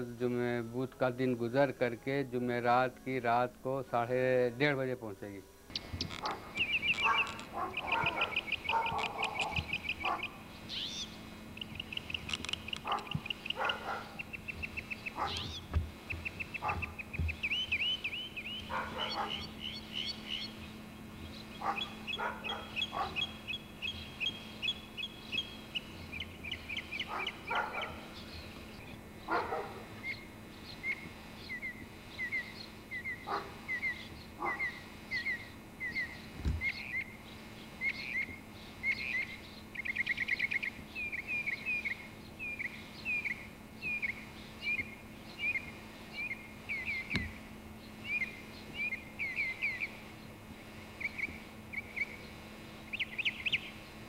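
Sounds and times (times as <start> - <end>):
low steady hum: 0.0 - 54.0
songbird singing whistled phrases: 5.7 - 20.6, 37.8 - 47.3, 48.0 - 50.0.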